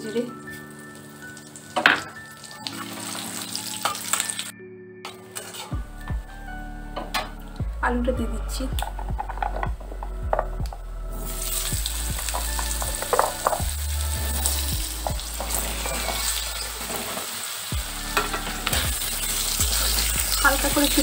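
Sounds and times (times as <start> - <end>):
potatoes sizzling in oil: 0.0 - 4.5, 11.2 - 21.0
pieces clicking in pan: 12.2 - 13.7.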